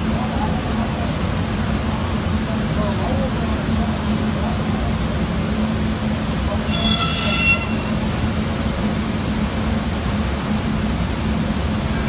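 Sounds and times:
high-pitched whine: 0:06.6 - 0:08.4.

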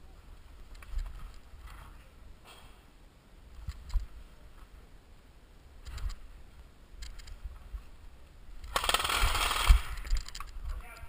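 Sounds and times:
gear rustling: 0:08.6 - 0:10.6.

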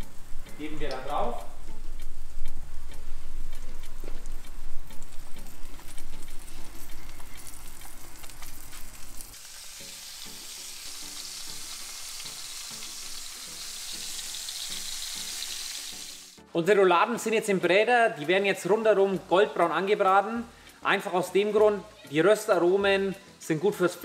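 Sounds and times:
meat sizzling in hot oil: 0:04.1 - 0:16.5.

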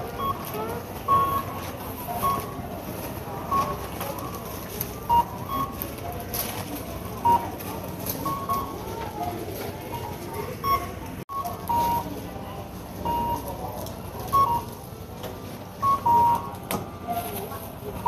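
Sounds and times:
hubbub of store: 0:00.0 - 0:18.0
barcode scanner beeping: 0:00.1 - 0:12.2, 0:13.0 - 0:14.9, 0:15.8 - 0:17.5.

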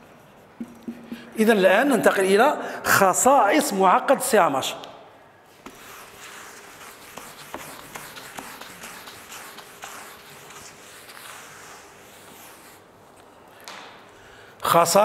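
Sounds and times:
eraser rubbing on whiteboard: 0:05.6 - 0:12.9.

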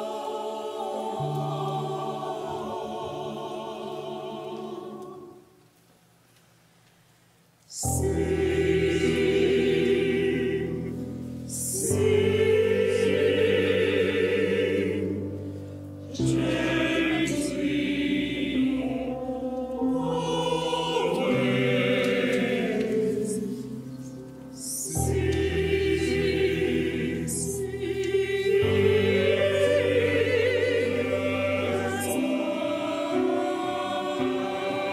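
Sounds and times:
mixed choir singing: 0:00.0 - 0:05.7, 0:07.7 - 0:34.9
piano accompaniment: 0:07.8 - 0:34.9.

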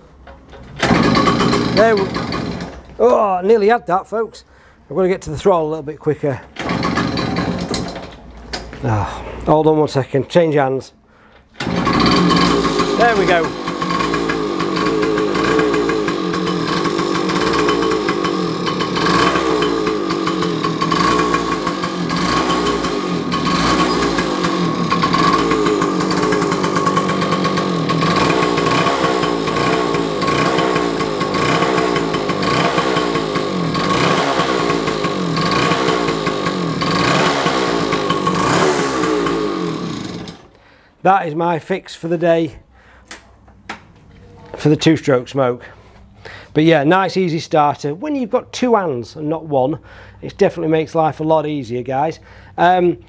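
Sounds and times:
two-stroke engine running: 0:00.8 - 0:02.8, 0:06.6 - 0:07.9, 0:11.6 - 0:40.5.

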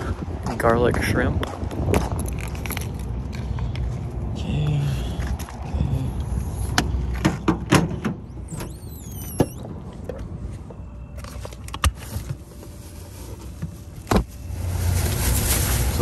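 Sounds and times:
door squeal: 0:08.3 - 0:09.7.

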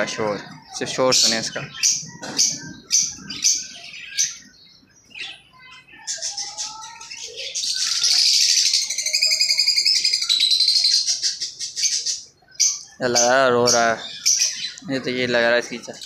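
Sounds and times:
bird high chattering chirps: 0:00.0 - 0:16.0.

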